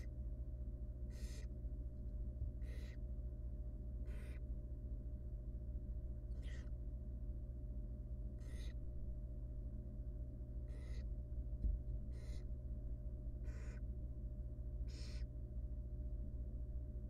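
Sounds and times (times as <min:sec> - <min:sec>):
steady low hum: 0:00.0 - 0:17.0
owl chicks hissing calls: 0:01.1 - 0:01.5, 0:02.6 - 0:03.0, 0:04.0 - 0:04.4, 0:06.3 - 0:06.7, 0:08.4 - 0:08.8, 0:10.7 - 0:11.1, 0:12.1 - 0:12.5, 0:13.4 - 0:13.8, 0:14.8 - 0:15.3.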